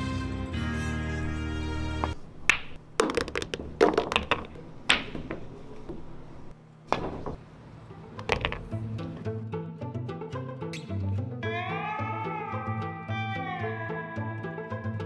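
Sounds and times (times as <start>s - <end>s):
music: 0.0s - 2.2s, 7.8s - 15.0s
cue striking cue ball: 2.0s - 6.2s, 6.9s - 7.4s
pool balls clacking: 2.0s - 7.4s, 8.2s - 8.8s.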